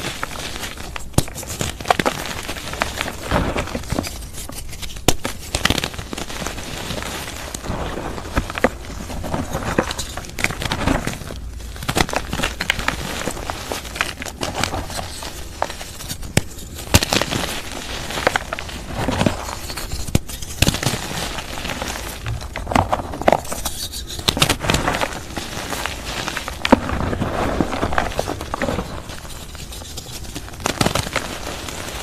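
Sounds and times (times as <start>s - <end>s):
dry chalk crunching: 0.0s - 32.0s.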